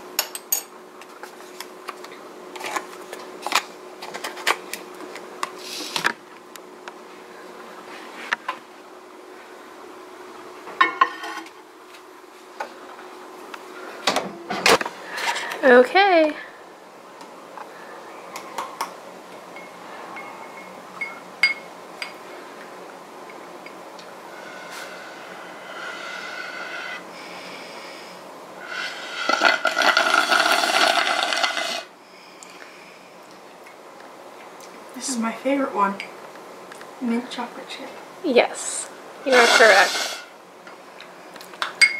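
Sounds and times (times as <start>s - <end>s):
spoon clinking glass bowl: 20.2s - 22.2s
slurping through a straw: 28.6s - 31.9s, 39.3s - 40.3s.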